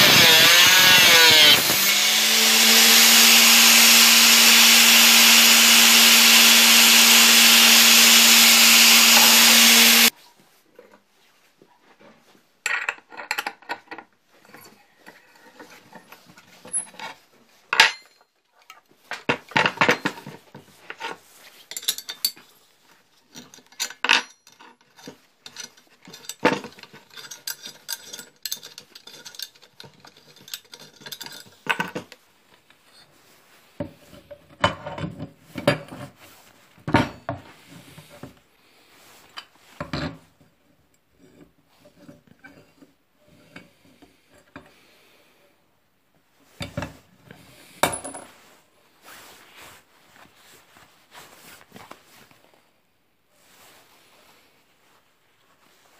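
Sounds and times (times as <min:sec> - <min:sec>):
steel parts clanking and scraping: 0:19.8 - 0:22.4, 0:23.4 - 0:32.1.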